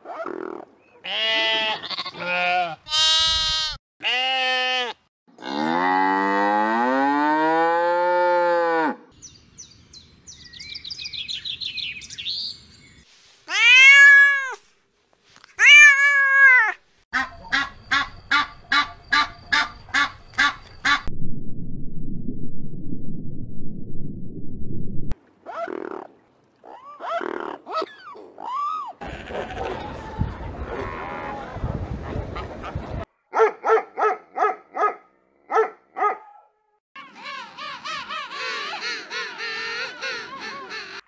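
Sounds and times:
calf mooing: 0:01.1 - 0:09.0
cat meowing: 0:13.5 - 0:14.6.

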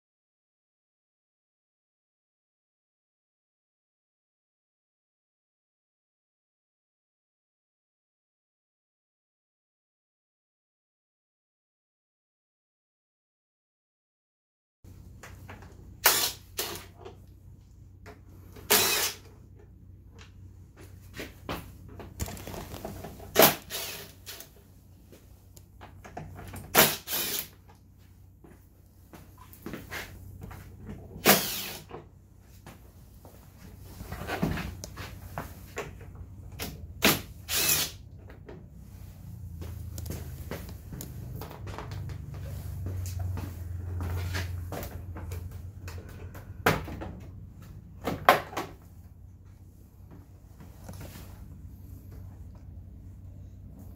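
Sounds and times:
loud sharp plastic clacks: 0:22.1 - 0:24.5.

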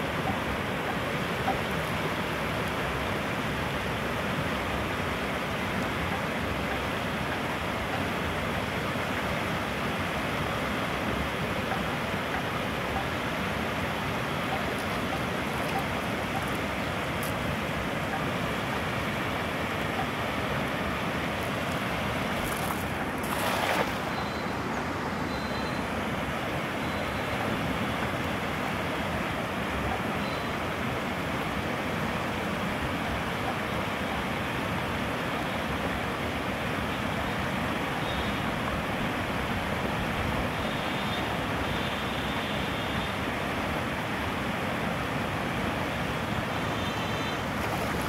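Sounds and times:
water rushing over weir: 0:00.0 - 0:48.0
net splashing on water: 0:21.7 - 0:24.2, 0:47.5 - 0:48.0.

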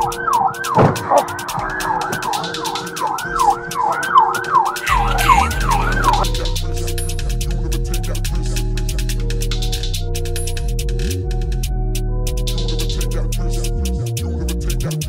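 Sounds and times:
police car siren: 0:00.0 - 0:06.4
drill beat with hi-hats: 0:00.0 - 0:15.0
heavy bass: 0:04.8 - 0:15.0.

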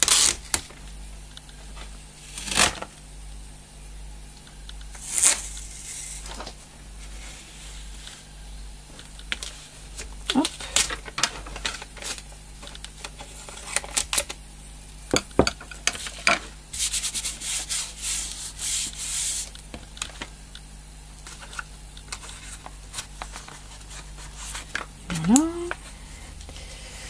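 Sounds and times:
hands rubbing tape on cardboard: 0:16.8 - 0:19.6.

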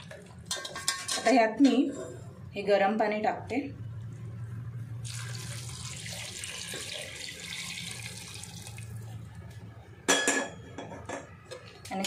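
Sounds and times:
low steady hum: 0:00.0 - 0:12.0
water pouring into pot: 0:05.0 - 0:09.1.

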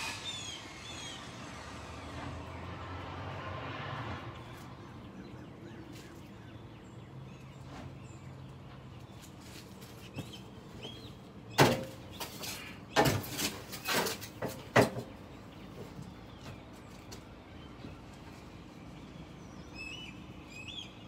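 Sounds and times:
low outdoor background: 0:00.0 - 0:21.0
shovel scraping dirt: 0:11.7 - 0:14.6.

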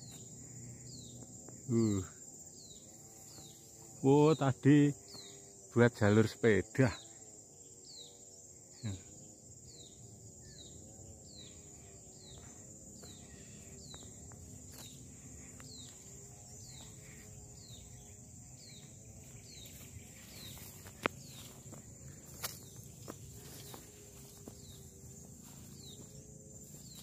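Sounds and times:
high-pitched insect drone: 0:00.0 - 0:27.0
footsteps in grass: 0:12.1 - 0:27.0.

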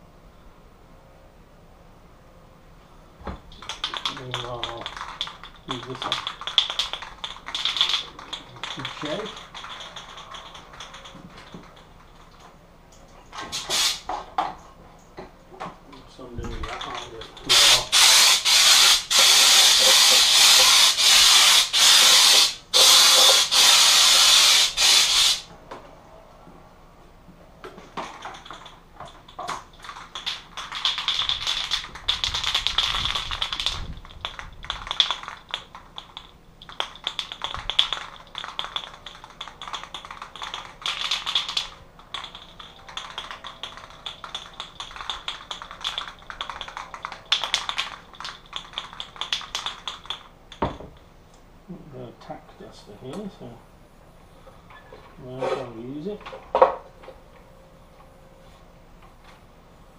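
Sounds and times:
aerosol mixing ball rattling: 0:03.4 - 0:12.4, 0:16.5 - 0:25.4, 0:27.9 - 0:51.0
aerosol can spraying: 0:13.5 - 0:14.1, 0:17.5 - 0:25.5.

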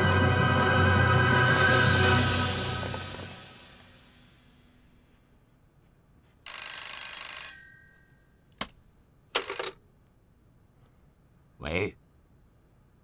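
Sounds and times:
telephone bell ringing: 0:06.4 - 0:08.3, 0:09.4 - 0:09.8.

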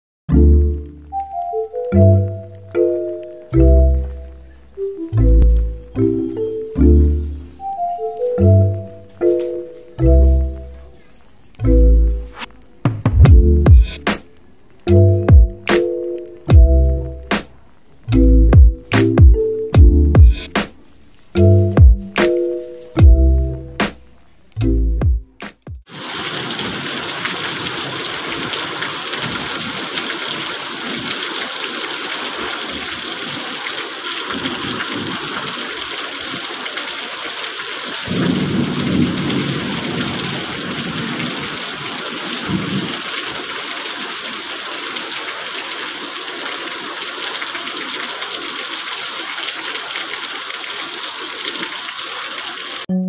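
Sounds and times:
heavy rain falling: 0:00.4 - 0:24.5, 0:25.9 - 0:52.9
thunder rumbling: 0:38.0 - 0:43.6.

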